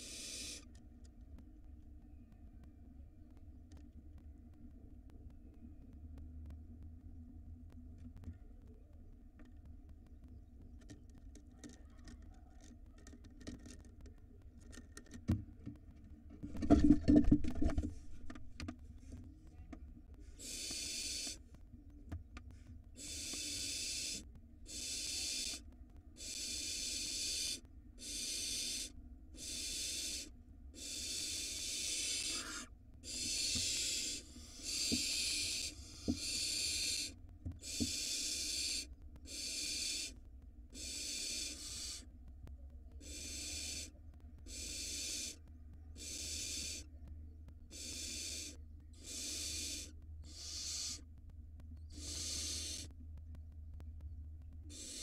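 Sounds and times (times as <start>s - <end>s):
owl chicks rasping hisses: 0.0s - 0.7s, 20.2s - 21.4s, 22.9s - 25.6s, 26.2s - 42.1s, 43.0s - 46.9s, 47.6s - 51.1s, 51.8s - 53.0s, 54.7s - 55.0s.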